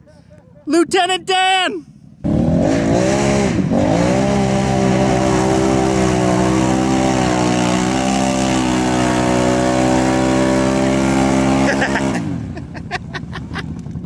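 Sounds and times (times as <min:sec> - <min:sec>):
engine revving in mud: 0:02.2 - 0:12.8.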